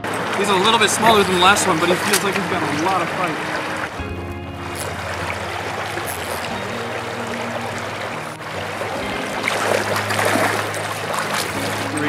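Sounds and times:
quiet background music chords: 0:00.0 - 0:12.0
river water rushing: 0:00.0 - 0:12.0
water splashing: 0:00.0 - 0:12.0.

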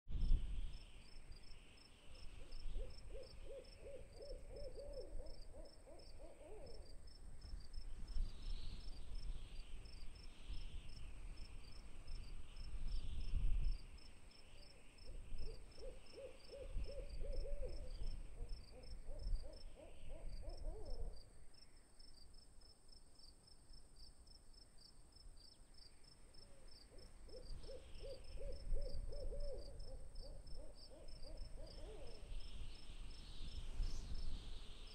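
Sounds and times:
crickets chirping: 0:00.2 - 0:34.9
owl hooting: 0:02.0 - 0:06.9, 0:14.6 - 0:21.2, 0:26.4 - 0:32.6.

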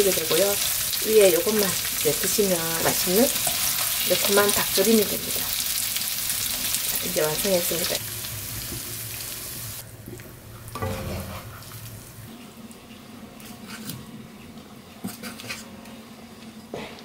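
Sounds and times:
utensils scraping a frying pan: 0:10.8 - 0:11.9.

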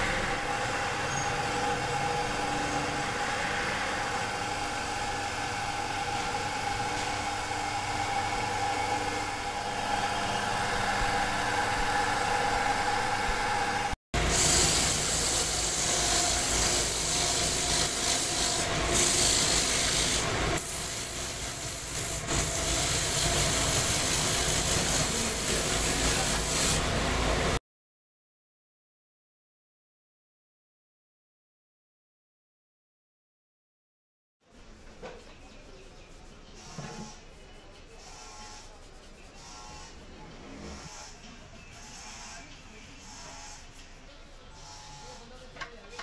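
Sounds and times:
wood lathe humming: 0:00.0 - 0:27.5.

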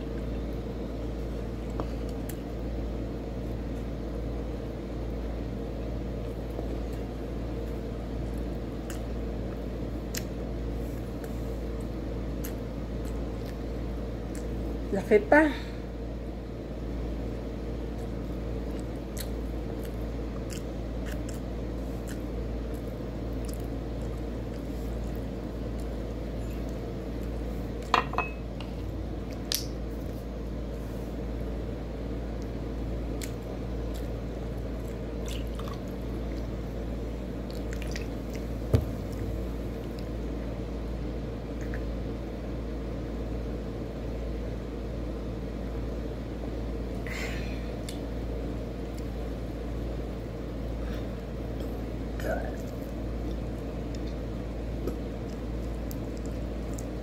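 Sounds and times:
low hum: 0:00.0 - 0:57.0
food squishing: 0:17.9 - 0:27.9, 0:32.4 - 0:40.2, 0:52.6 - 0:57.0.

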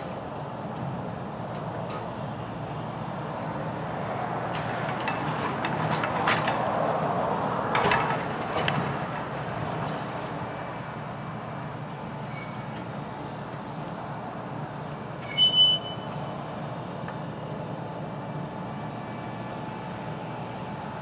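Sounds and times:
steel grapple clanking on concrete: 0:04.5 - 0:06.7, 0:07.7 - 0:09.3.

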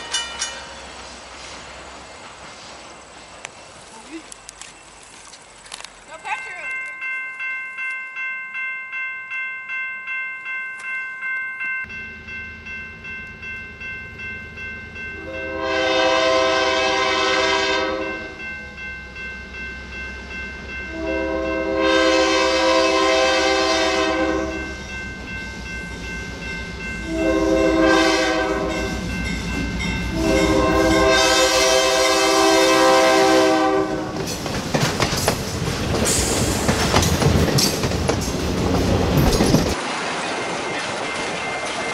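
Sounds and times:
crossing warning bells ringing: 0:00.0 - 0:01.4, 0:05.7 - 0:41.9
train wheels clattering over rails: 0:00.0 - 0:01.7, 0:34.0 - 0:41.9
train horn blowing: 0:15.2 - 0:18.4, 0:20.8 - 0:24.8, 0:27.0 - 0:29.1, 0:29.8 - 0:34.2.

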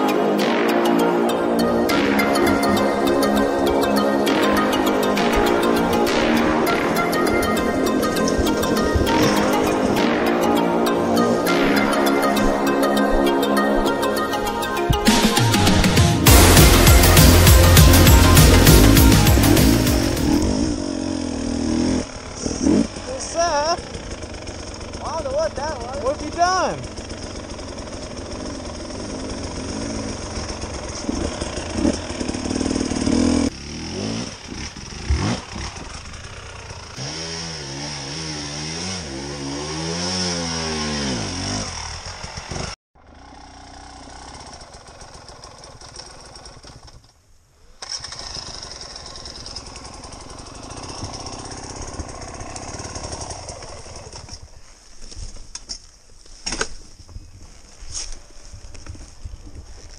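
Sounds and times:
dirt bike engines revving: 0:15.0 - 0:46.9, 0:47.8 - 0:54.7.

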